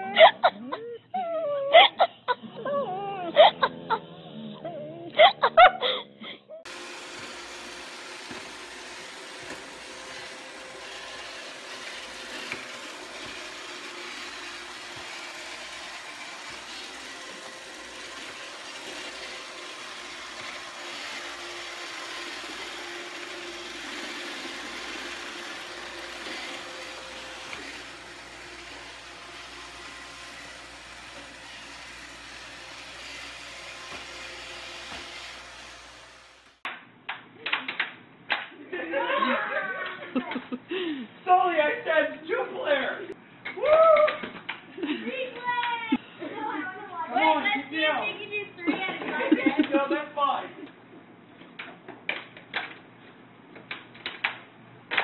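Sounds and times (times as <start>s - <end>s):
robot vacuum cleaner whirring: 6.6s - 36.6s.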